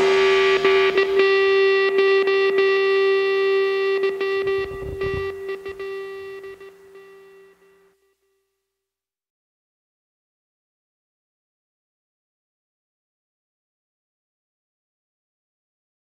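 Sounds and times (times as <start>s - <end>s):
rock music: 0.0s - 7.4s
distorted electric guitar note: 0.0s - 7.9s.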